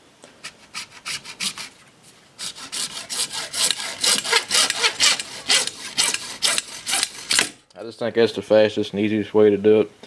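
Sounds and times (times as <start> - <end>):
hacksaw cutting plastic pipe: 0.4 - 1.8, 2.4 - 7.6.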